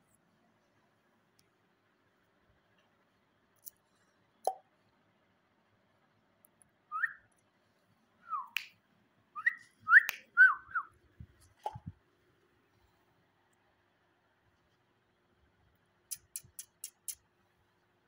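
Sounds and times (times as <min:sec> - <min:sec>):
parakeet chirps: 0:16.1 - 0:17.2
sharp clicks: 0:16.1 - 0:17.2.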